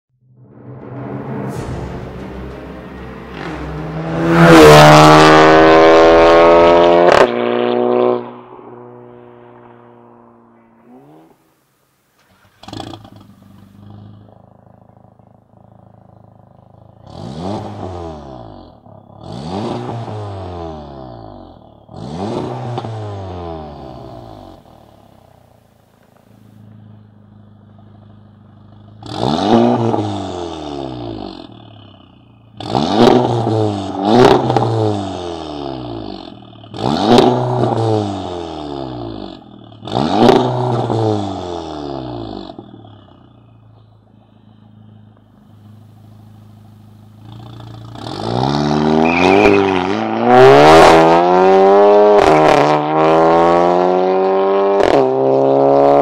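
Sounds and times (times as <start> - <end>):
car engine revving: 0.5 - 56.0
exhaust crack: 0.8 - 56.0
car engine idling: 9.4 - 17.6, 23.5 - 29.3, 31.1 - 32.8, 42.5 - 48.2.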